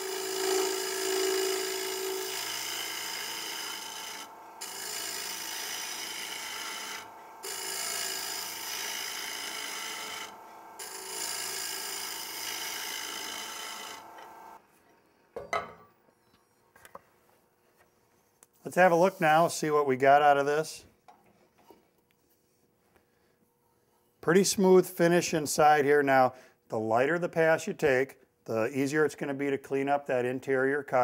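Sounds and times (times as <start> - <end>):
lathe tool scraping wood: 0.0 - 14.6.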